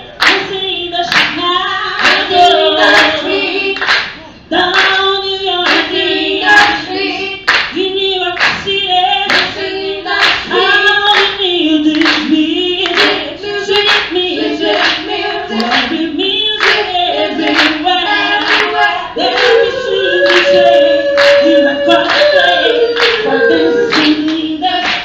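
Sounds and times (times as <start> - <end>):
female group singing in harmony: 0.0 - 25.0
hand claps: 0.2 - 1.4, 2.0 - 2.3, 3.8 - 5.0, 5.6 - 6.0, 7.5 - 7.8, 8.4 - 8.7, 9.3 - 9.6, 11.1 - 13.2, 13.8 - 14.1, 14.8 - 16.0, 16.6 - 17.8, 18.4 - 18.8, 20.2 - 20.6, 22.1 - 22.3, 23.0 - 23.3, 23.9 - 25.0.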